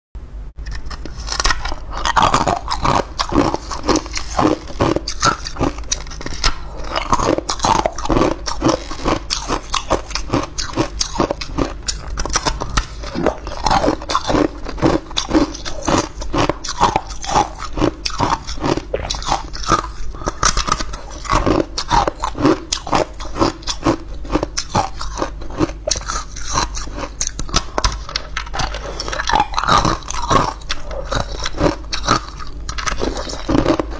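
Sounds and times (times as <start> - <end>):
ice cubes crunched between teeth: 0.6 - 33.9.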